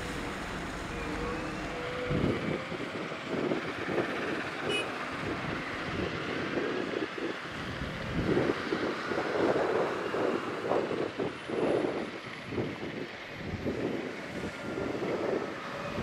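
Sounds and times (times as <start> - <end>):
heavy diesel machinery running: 0.0 - 9.4
wind on microphone: 0.0 - 16.0.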